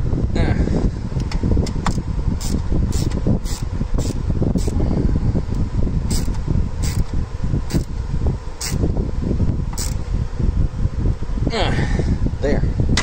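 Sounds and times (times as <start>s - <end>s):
low rushing background: 0.0s - 13.0s
socket ratchet clicking: 1.7s - 4.8s, 6.1s - 7.9s, 9.8s - 10.0s.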